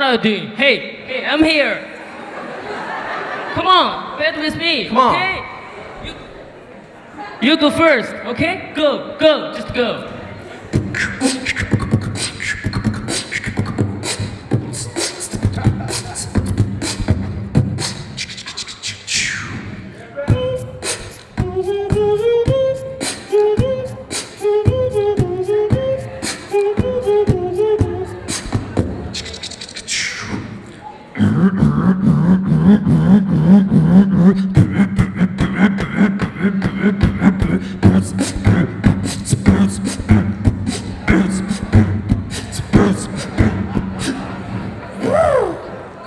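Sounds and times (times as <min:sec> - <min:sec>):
pitched vocal melody: 0:07.4 - 0:46.0
beatboxing mouth drums: 0:10.7 - 0:45.5
deep bass drone: 0:31.2 - 0:36.1.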